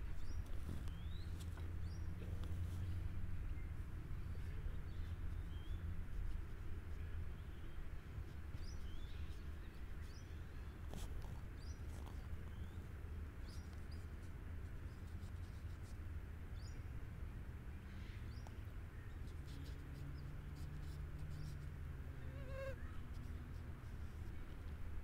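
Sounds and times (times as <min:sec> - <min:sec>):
low outdoor rumble: 0:00.0 - 0:25.0
fly buzzing: 0:22.3 - 0:22.8.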